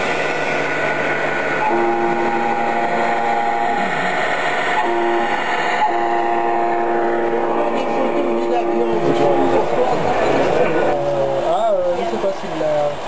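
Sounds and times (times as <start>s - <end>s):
truck air horn blasts: 1.5s - 11.6s.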